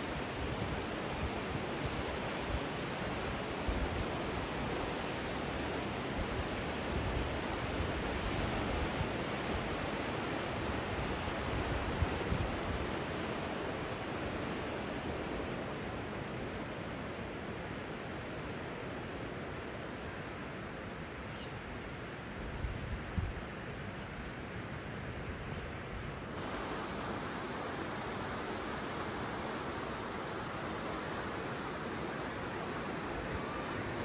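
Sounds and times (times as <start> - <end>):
river rushing: 0.0 - 22.4, 23.5 - 34.0.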